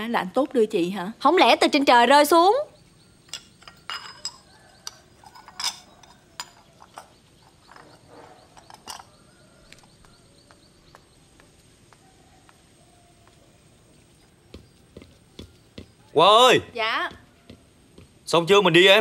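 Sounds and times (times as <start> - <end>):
dishes clinking and knocking: 3.2 - 9.6.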